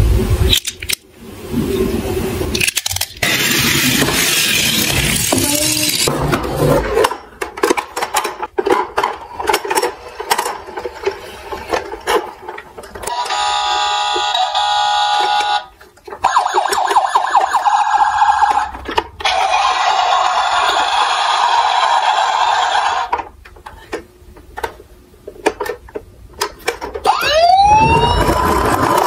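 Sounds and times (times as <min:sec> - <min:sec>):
plastic toys clattering in box: 0:02.5 - 0:06.1
electronic alarm tone: 0:13.1 - 0:15.7
wavering electronic siren: 0:13.1 - 0:18.7, 0:27.1 - 0:28.6.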